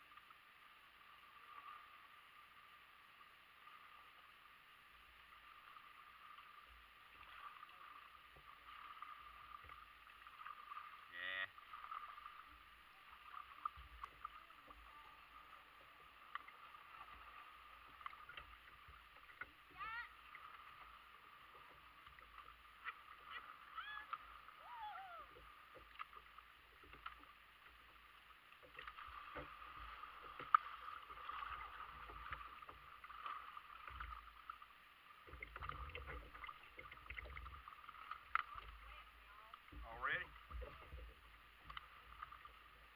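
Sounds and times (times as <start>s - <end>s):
paddle splashes: 5.0s - 42.9s
water ticking against plastic hull: 25.2s - 42.9s.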